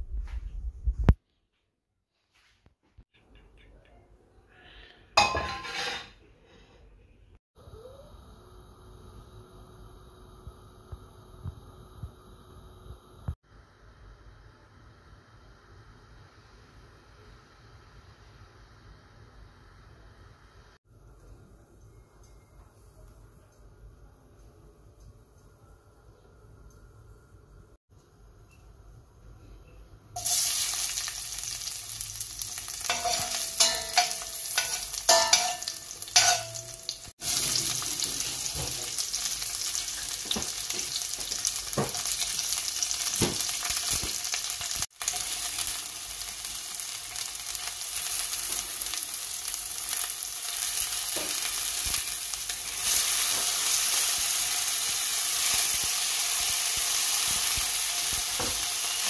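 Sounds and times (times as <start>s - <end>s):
vegetables sizzling in oil: 30.2s - 59.0s
metallic clinks against pot: 32.9s - 37.0s.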